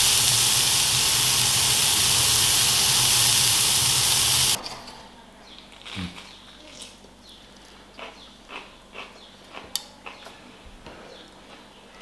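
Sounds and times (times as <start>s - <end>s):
steak sizzling in a pan: 0.0s - 4.6s.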